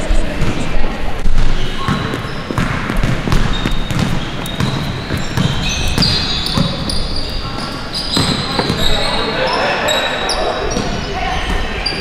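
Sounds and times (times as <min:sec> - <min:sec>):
ball bouncing on hard court: 0:00.3 - 0:09.0
sneaker squeaks: 0:00.3 - 0:12.0.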